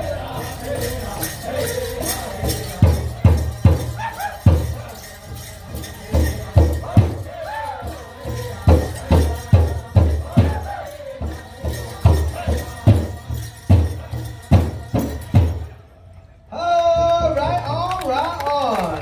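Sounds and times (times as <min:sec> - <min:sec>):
high wavering singing: 0:00.0 - 0:17.5
big drum beating: 0:02.4 - 0:15.8.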